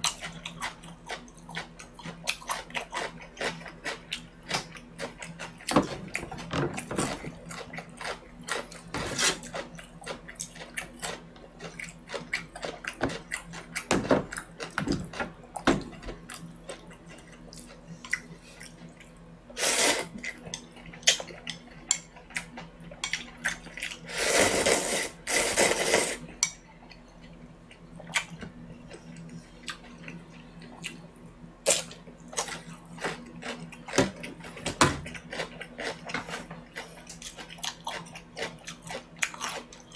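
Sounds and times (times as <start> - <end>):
slurping soup: 19.6 - 20.2, 24.1 - 26.2
chewing: 31.7 - 39.9.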